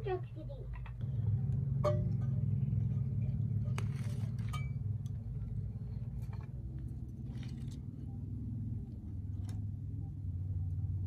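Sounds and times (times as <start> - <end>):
fire low rumble: 1.0 - 11.0.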